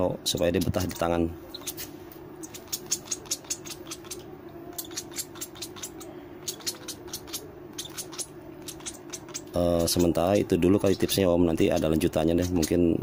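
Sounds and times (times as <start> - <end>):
steady low hum: 0.0 - 13.0
bird beak clicking: 2.4 - 10.2.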